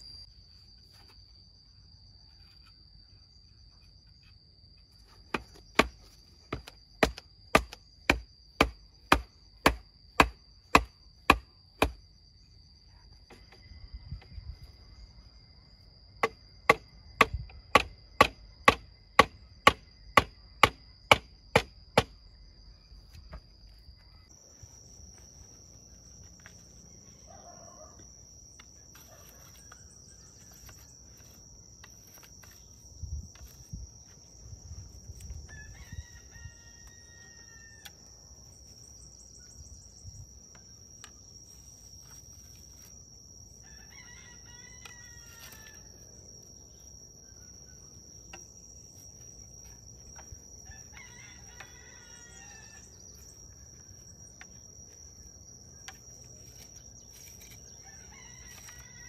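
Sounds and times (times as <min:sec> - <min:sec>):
steady high-pitched whine: 0:00.0 - 0:16.2
rooster crowing: 0:35.5 - 0:38.1, 0:43.6 - 0:46.0, 0:50.6 - 0:53.0, 0:57.7 - 0:59.0.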